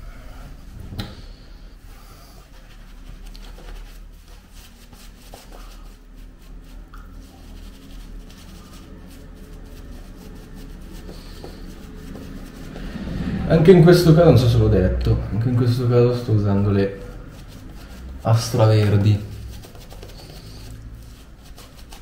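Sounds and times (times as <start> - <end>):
shaving brush scrubbing stubble: 2.3 - 12.9, 15.8 - 22.0.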